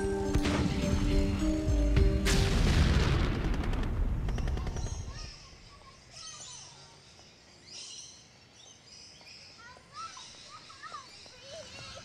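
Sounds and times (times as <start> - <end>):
explosion blast: 2.1 - 4.3
machine-gun fire cracks: 2.3 - 5.1.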